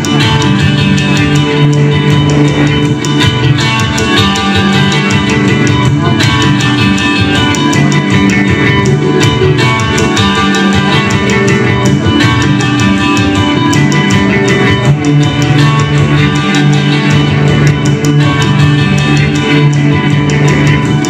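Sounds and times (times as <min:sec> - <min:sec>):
live band playing guitar music: 0:00.0 - 0:21.0.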